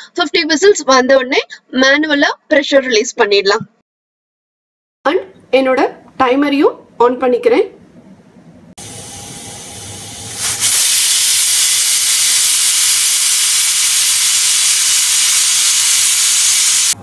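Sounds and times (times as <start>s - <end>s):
pressure cooker steam hissing: 8.8s - 17.0s.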